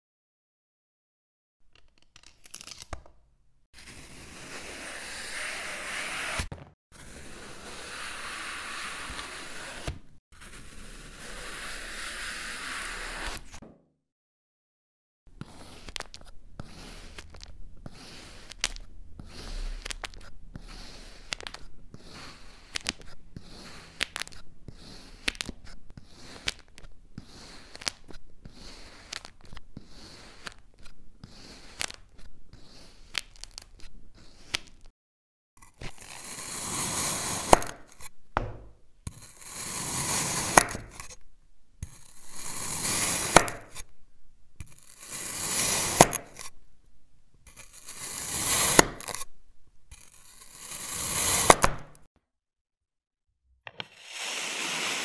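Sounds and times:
cutter scraping packed sand: 3.8 - 13.6, 15.4 - 34.8, 35.6 - 38.1, 39.1 - 41.2, 41.8 - 43.9, 44.6 - 46.6, 47.4 - 49.3, 49.9 - 51.7, 53.7 - 55.0
blade hissing through sand: 53.9 - 55.0.

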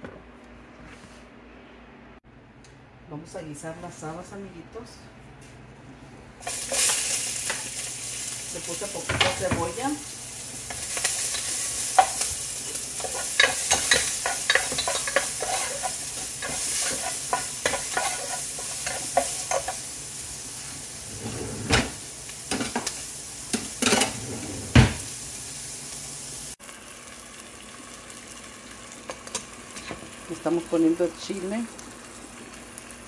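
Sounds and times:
onion sizzling in a pot: 6.4 - 33.0
spatula scraping a pot: 13.0 - 19.8.

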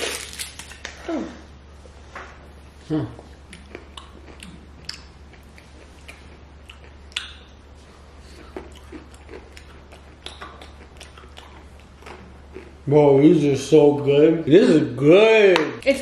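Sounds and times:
faint steady low hum: 0.0 - 16.0
chewing and crunching toffee: 3.3 - 12.9.

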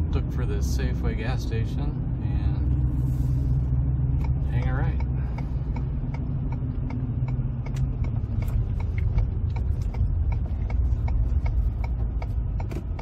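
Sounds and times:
road and engine rumble: 0.0 - 13.0.

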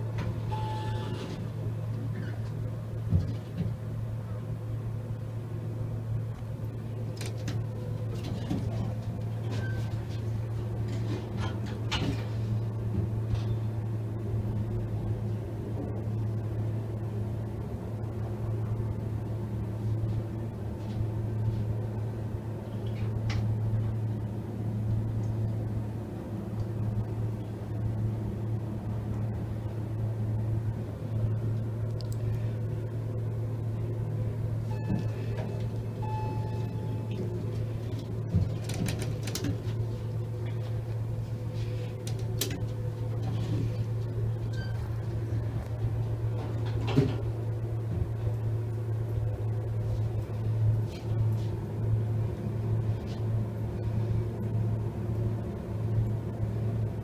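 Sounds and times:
elevator hum and ride rumble: 0.0 - 57.0
click: 31.9 - 32.3.

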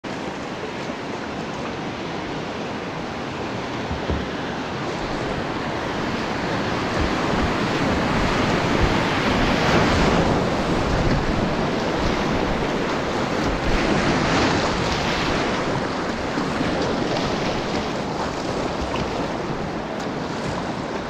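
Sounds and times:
river whitewater rushing: 0.0 - 21.0.

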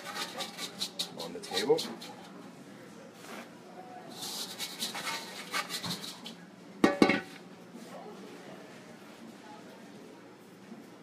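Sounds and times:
plastic scraper scraping steel bowl: 0.0 - 2.2, 4.2 - 6.3.

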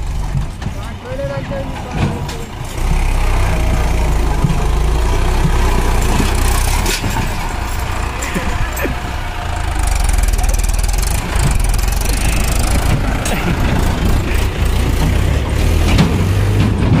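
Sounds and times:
tractor diesel engine rumbling: 0.0 - 17.0.

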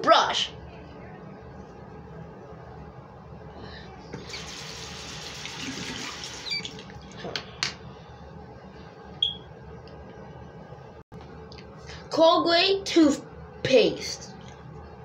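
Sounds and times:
sink tap running: 4.2 - 7.0.

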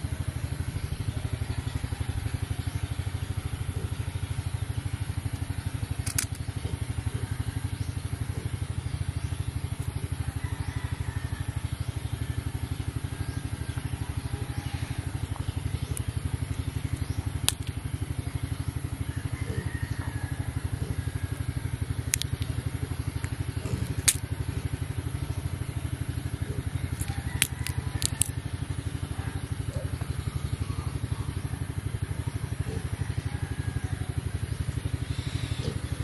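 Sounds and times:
small engine idling: 0.0 - 36.0
melon rind cracking and snapping: 24.0 - 24.2, 27.0 - 28.4.

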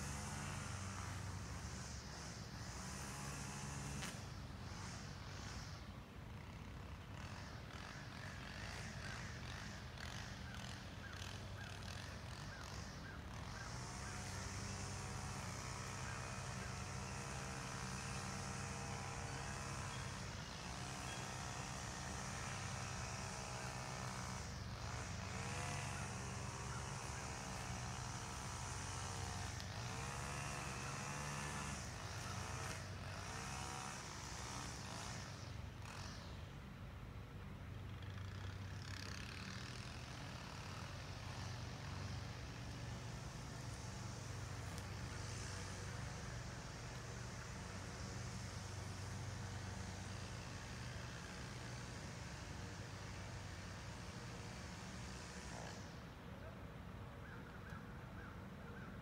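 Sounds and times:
engine revving lightly: 0.0 - 36.6, 37.8 - 56.5
motor humming: 13.6 - 36.5.

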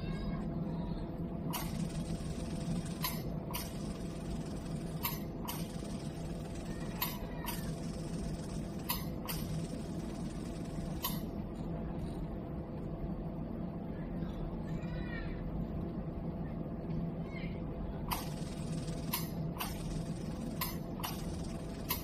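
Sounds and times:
machine humming: 0.0 - 13.9, 17.9 - 22.0
sharp machine clicks: 1.5 - 11.6, 18.1 - 22.0.

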